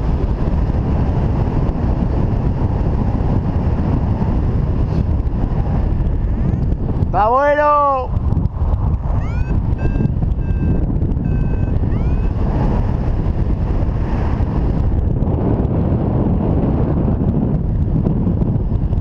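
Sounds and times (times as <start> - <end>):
wind rushing over microphone: 0.0 - 19.0
variometer short high beeps: 9.1 - 12.4.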